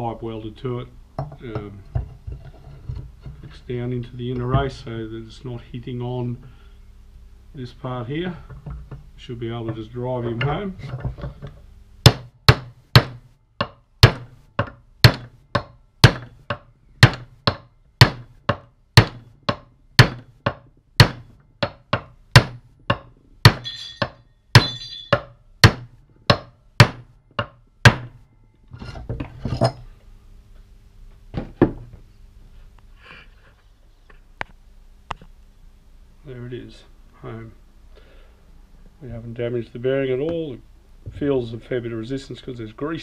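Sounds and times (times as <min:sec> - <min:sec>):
hammer striking steel pipe: 0:12.1 - 0:28.1
metal clatters: 0:23.6 - 0:25.2.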